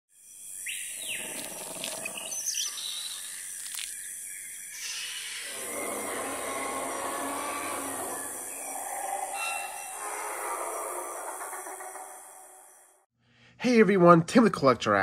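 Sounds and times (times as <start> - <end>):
bird-like chirps and calls: 0.2 - 12.9.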